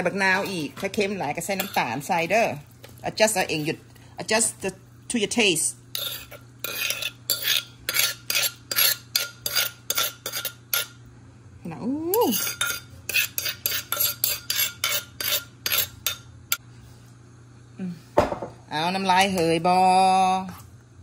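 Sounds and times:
spoon scraping in a mortar: 0.0 - 3.8, 5.9 - 11.0, 12.2 - 16.3.

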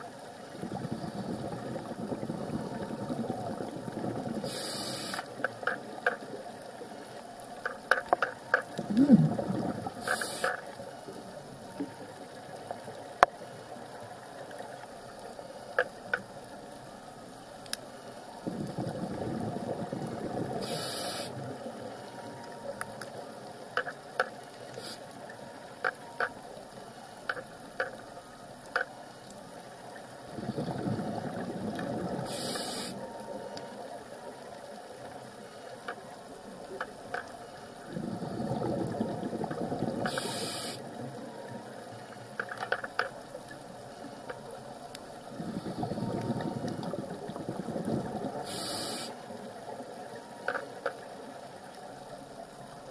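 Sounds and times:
regulator inhalation hiss: 4.4 - 5.3, 10.0 - 10.6, 20.6 - 21.4, 24.8 - 25.1, 32.3 - 33.0, 40.1 - 40.9, 48.4 - 49.2
sharp clicks and crackles: 4.6 - 6.4, 7.6 - 9.0, 15.7 - 16.4, 22.8 - 24.8, 25.8 - 26.4, 27.2 - 29.0, 35.8 - 37.4, 42.3 - 45.1.

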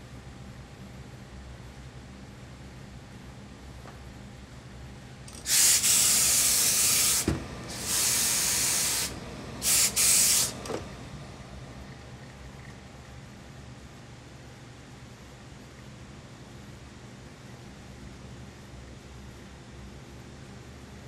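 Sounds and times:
steam iron hissing: 5.3 - 10.7.

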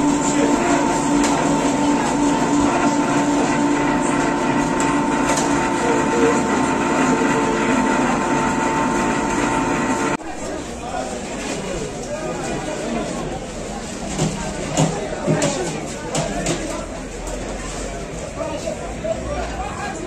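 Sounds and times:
meat grinder motor humming: 0.0 - 10.2.

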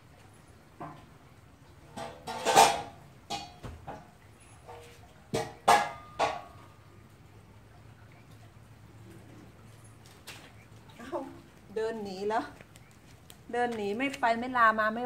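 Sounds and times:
sharp clatters and knocks: 1.9 - 6.7.

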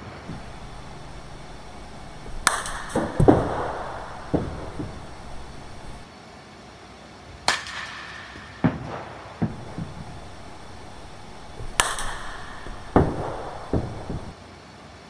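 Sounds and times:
bat striking softball: 0.0 - 6.0, 7.4 - 14.3
dull thuds: 0.0 - 6.0, 8.6 - 14.3.

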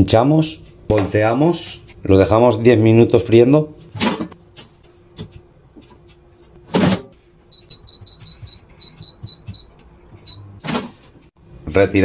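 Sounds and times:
control panel beeping: 7.5 - 10.6.

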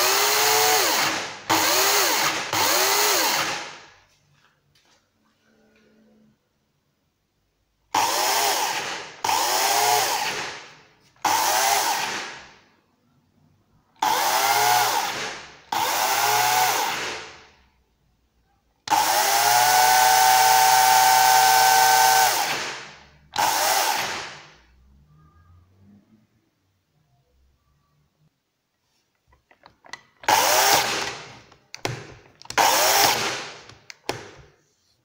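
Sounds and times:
electric chainsaw revving: 14.0 - 17.2, 18.9 - 22.8, 30.3 - 31.2, 32.6 - 33.7.

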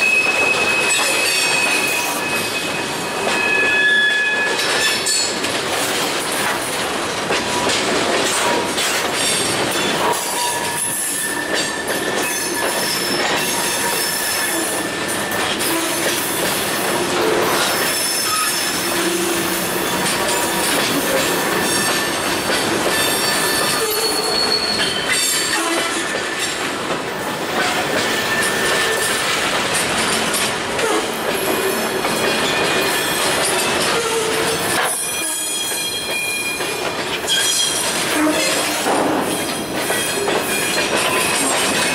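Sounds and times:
high wheel squeals: 0.0 - 5.3, 10.3 - 16.0, 17.6 - 22.3, 22.9 - 26.0, 27.6 - 29.2, 33.8 - 41.3
train wheels rumbling and clattering: 0.0 - 41.9.

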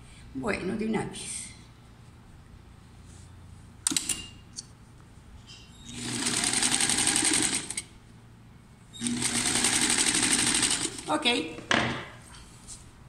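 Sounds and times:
sewing machine stitching: 5.9 - 7.9, 9.0 - 11.1.

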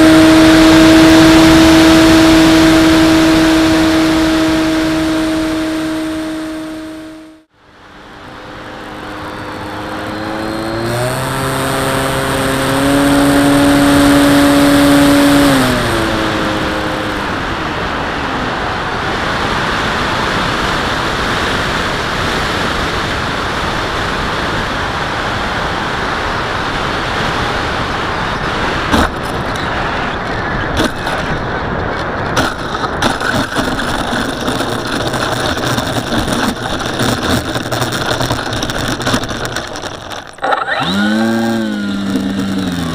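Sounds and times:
electric motor and propeller whine: 0.0 - 31.5, 32.4 - 42.9
wheels rattling on ground: 7.8 - 17.8, 28.2 - 42.9.

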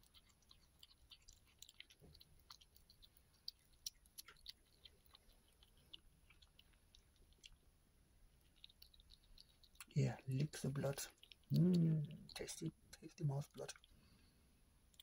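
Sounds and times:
kitten chewing and licking: 0.0 - 15.0.

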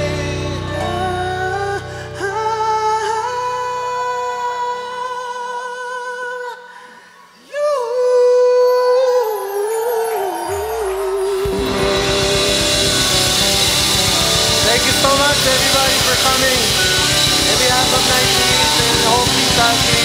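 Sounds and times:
band chords: 10.5 - 20.0.

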